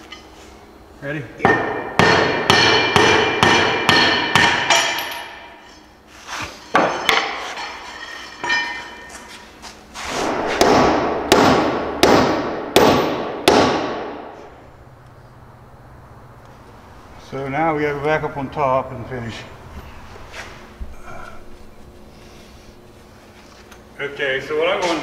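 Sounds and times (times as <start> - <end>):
hammer striking steel: 1.4 - 6.0, 6.7 - 9.3, 10.2 - 14.5.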